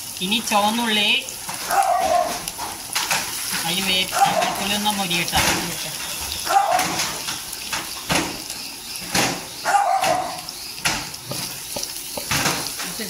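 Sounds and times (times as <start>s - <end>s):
garlic sizzling in oil: 0.0s - 13.0s
bark-like call: 1.6s - 2.4s, 4.1s - 4.8s, 6.4s - 7.0s, 9.5s - 10.6s.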